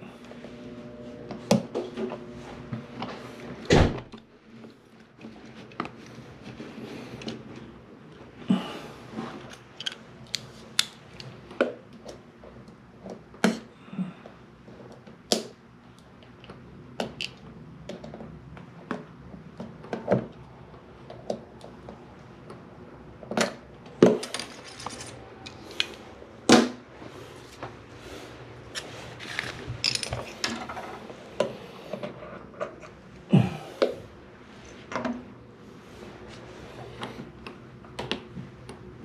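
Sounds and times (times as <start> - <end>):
hand tools clicking and clinking: 24.0 - 25.6, 29.3 - 30.6.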